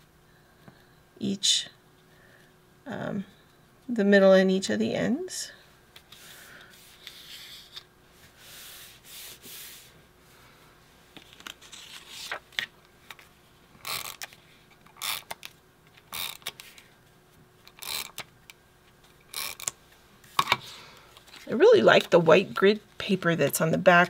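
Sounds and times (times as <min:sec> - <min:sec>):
paper handling: 0:11.2 - 0:13.3
tape runner scraping on paper: 0:13.8 - 0:14.4, 0:17.7 - 0:18.2.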